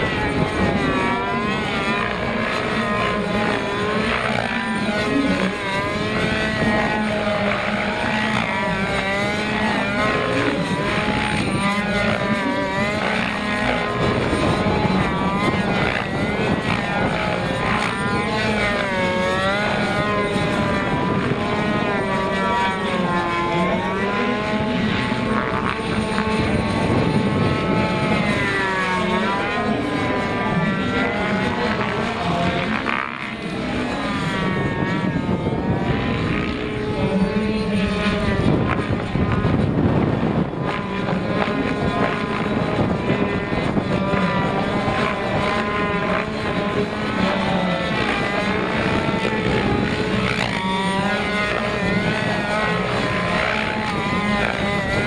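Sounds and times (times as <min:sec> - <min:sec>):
model helicopter engine and rotor: 0:00.0 - 0:55.0.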